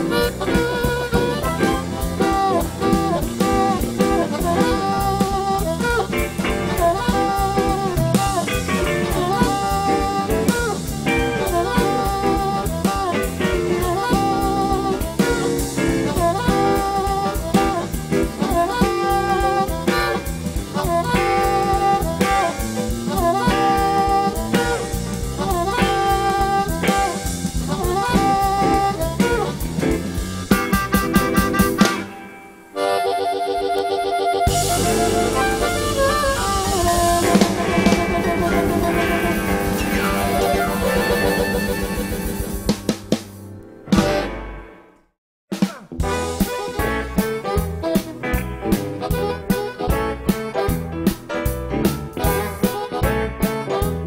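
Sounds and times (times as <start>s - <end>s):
drum kit steady beat: 0.0s - 32.9s, 34.5s - 44.4s, 45.5s - 54.0s
blues harmonica solo: 0.0s - 43.2s, 45.6s - 51.5s, 52.1s - 54.0s
live band: 0.0s - 44.8s, 45.5s - 54.0s.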